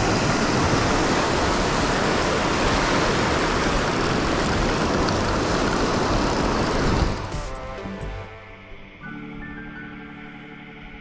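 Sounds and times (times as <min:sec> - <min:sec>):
small waves washing on shore: 0:00.0 - 0:07.4.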